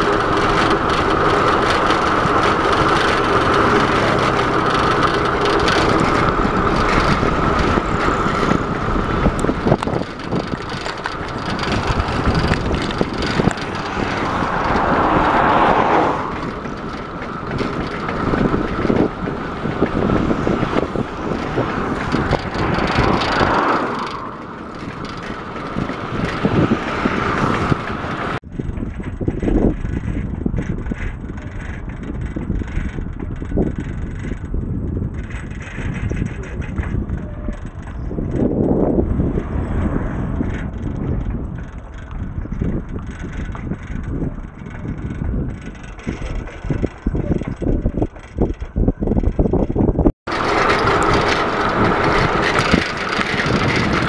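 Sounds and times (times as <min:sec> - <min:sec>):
truck passing: 0:00.0 - 0:28.4, 0:36.9 - 0:47.2, 0:50.3 - 0:54.0
vehicle passing: 0:00.0 - 0:28.4, 0:37.7 - 0:42.4, 0:50.3 - 0:54.0
bicycle road and wind noise: 0:00.0 - 0:54.0.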